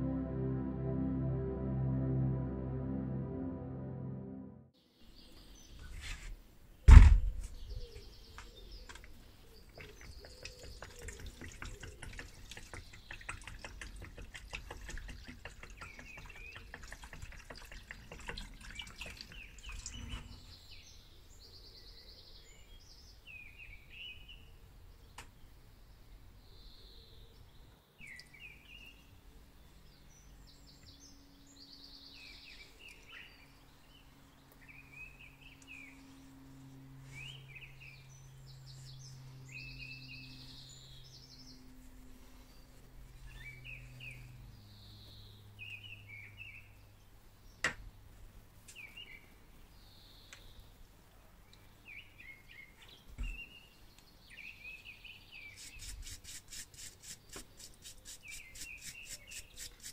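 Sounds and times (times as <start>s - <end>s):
birds chirping: 7.5s - 21.1s, 51.5s - 59.9s
liquid pouring and splashing: 9.8s - 20.1s.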